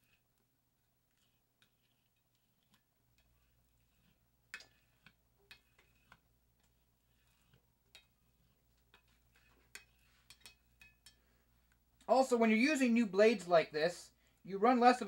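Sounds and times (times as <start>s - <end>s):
blade scraping glass: 7.1s - 11.2s.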